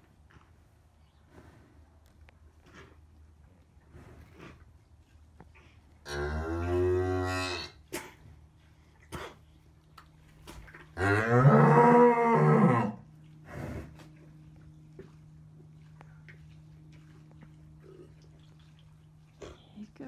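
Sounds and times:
cow mooing: 6.1 - 7.8, 11.0 - 13.0.

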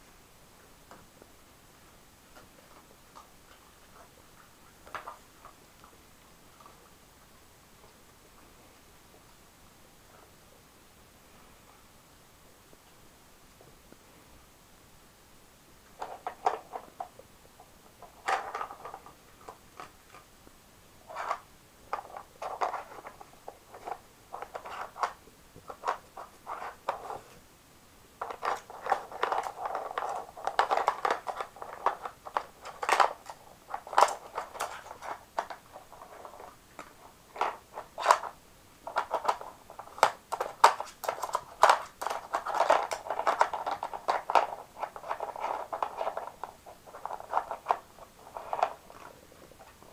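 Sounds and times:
plastic pegs clicking and clattering: 28.2 - 35.6, 38.9 - 48.8.

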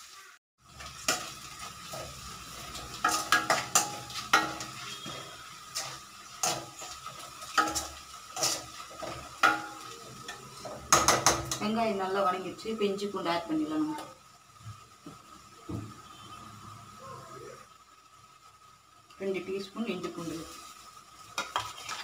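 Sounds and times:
onions sizzling in a pan: 0.0 - 22.0
metal spoon scraping a pan: 0.8 - 11.8, 21.4 - 22.0.

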